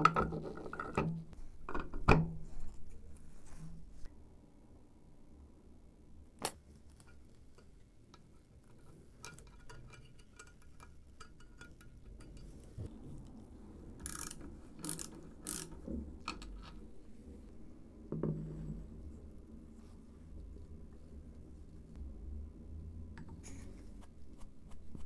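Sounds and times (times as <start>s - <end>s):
screwdriver ticking and scraping: 14.1s - 15.8s
metallic screw click: 14.1s - 16.4s.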